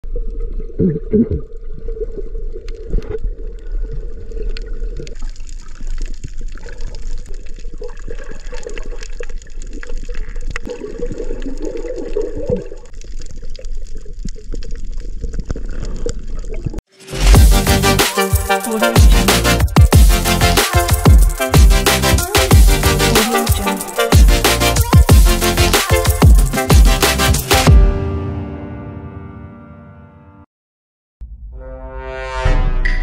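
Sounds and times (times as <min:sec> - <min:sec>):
moving water: 0:00.0 - 0:16.8
fine crackles and clicks: 0:02.0 - 0:10.7, 0:11.3 - 0:16.8.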